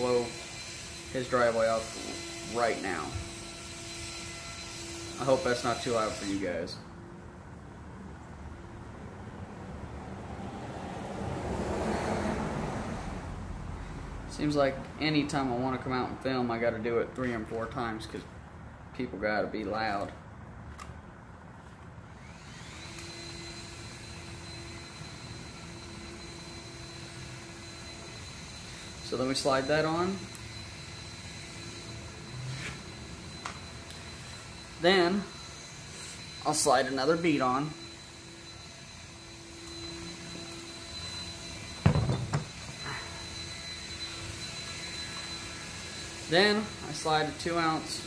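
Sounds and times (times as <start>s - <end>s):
leaf blower whining: 0.0s - 6.8s, 10.3s - 14.7s, 22.1s - 48.0s.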